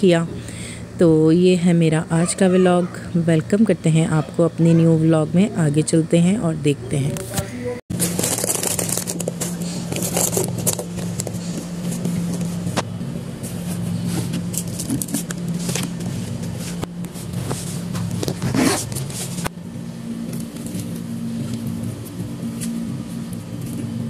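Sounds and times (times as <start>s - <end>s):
containers clicking and scraping: 8.0s - 12.5s.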